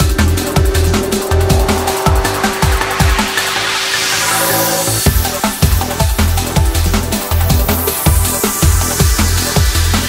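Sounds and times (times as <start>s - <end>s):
drum and bass electronic music: 0.0s - 10.0s
rising noise sweep: 0.2s - 5.6s.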